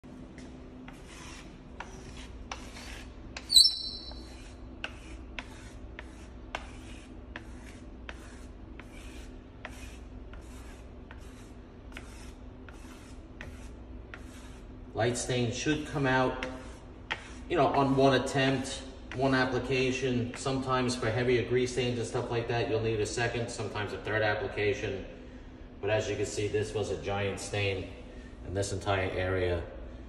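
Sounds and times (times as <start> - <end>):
stick scraping stone countertop: 0.9 - 14.7, 16.4 - 18.0.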